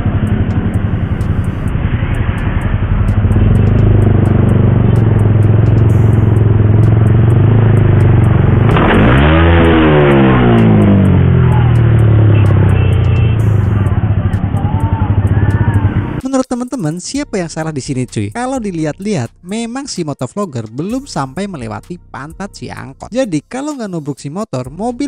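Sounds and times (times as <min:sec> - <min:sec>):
motorcycle engine revving: 0:00.0 - 0:16.2
sudden rush of noise: 0:00.0 - 0:16.2.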